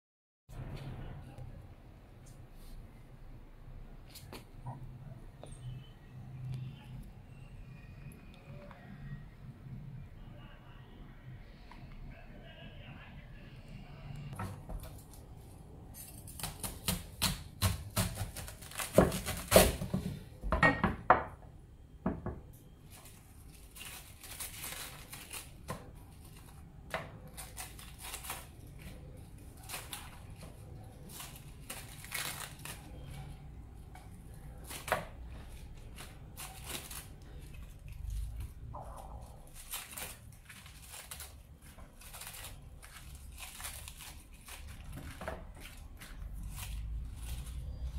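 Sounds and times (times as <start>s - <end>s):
cabbage leaves snapping and rustling: 16.2s - 19.8s, 27.3s - 33.2s, 34.3s - 38.6s, 39.2s - 47.9s.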